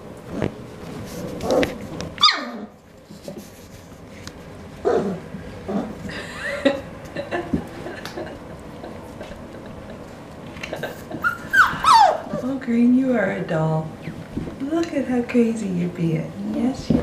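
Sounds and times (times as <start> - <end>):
puppies yelping and yipping: 2.2 - 2.7, 11.2 - 12.5.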